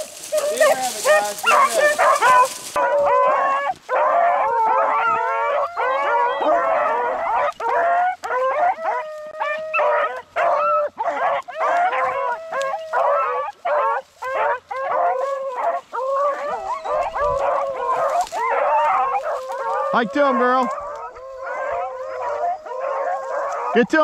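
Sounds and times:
hounds baying and howling: 0.0s - 24.0s.

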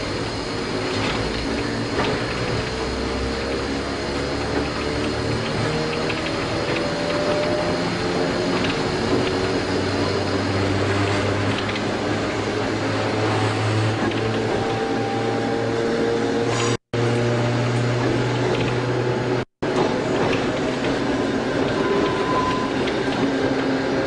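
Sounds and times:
train traction motor whine: 0.0s - 24.0s
wheels clicking over rail joints: 0.7s - 12.4s, 19.6s - 24.0s.

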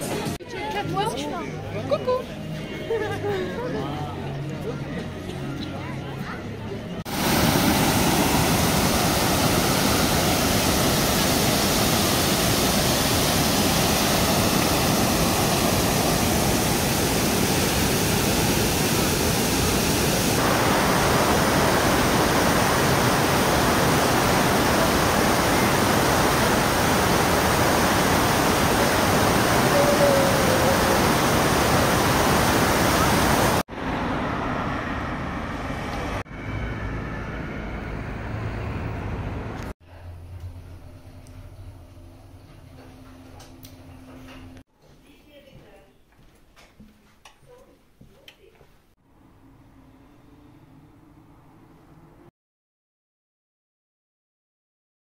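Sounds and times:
loud steady rushing noise: 7.1s - 37.3s
street traffic: 33.7s - 40.1s, 49.0s - 52.3s.

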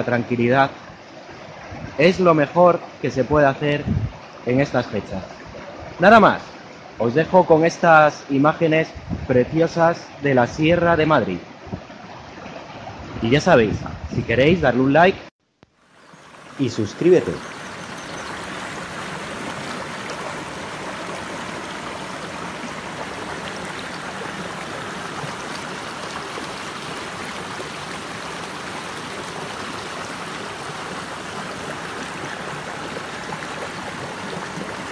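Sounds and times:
river water running over rocks: 15.7s - 34.9s.

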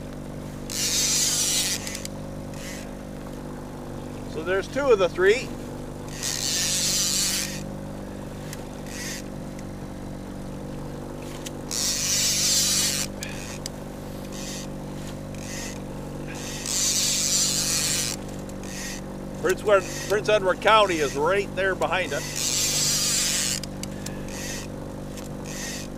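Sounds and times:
outboard motor running: 0.0s - 25.9s.

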